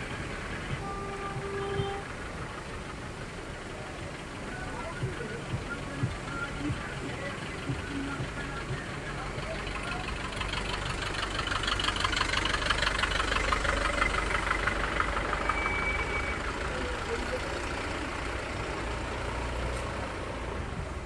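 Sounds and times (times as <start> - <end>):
fast rhythmic clatter: 0.0 - 18.8
vehicle engine rumbling: 0.0 - 21.0
brief high tone: 15.4 - 16.9.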